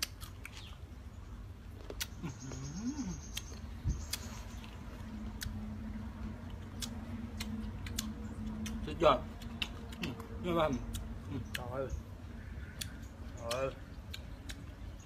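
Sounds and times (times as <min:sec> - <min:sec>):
man chewing crunchy fruit: 0:00.0 - 0:15.0.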